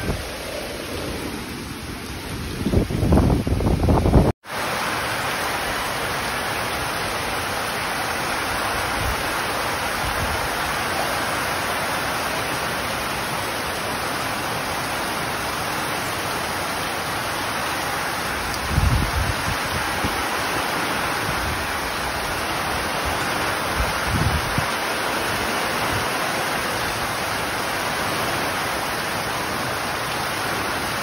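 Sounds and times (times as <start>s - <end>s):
heavy rain on metal roofs: 0.0s - 31.0s
water streaming off eaves: 0.0s - 31.0s.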